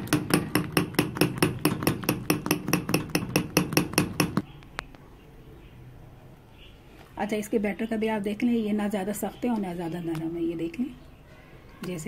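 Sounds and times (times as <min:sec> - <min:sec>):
batter beaten in a bowl: 0:00.0 - 0:04.4.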